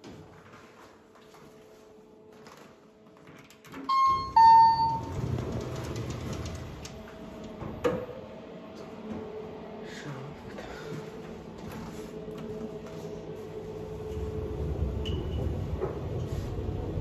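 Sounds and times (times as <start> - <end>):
two-tone lift chime: 3.9 - 5.1
lift doors opening rumble: 3.9 - 8.5, 14.0 - 17.0.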